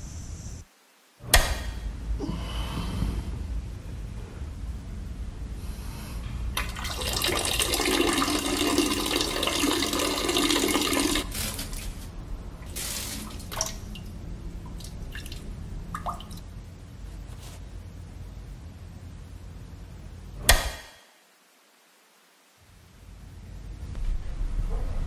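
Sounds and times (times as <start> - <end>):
urine stream splashing in toilet: 6.6 - 11.8, 12.6 - 14.0.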